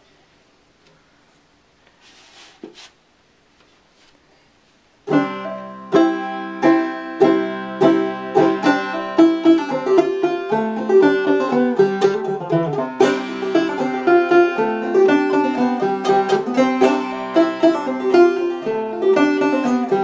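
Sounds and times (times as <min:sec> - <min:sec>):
faint handling noises: 0:00.0 - 0:05.0
banjo picking: 0:05.0 - 0:20.0.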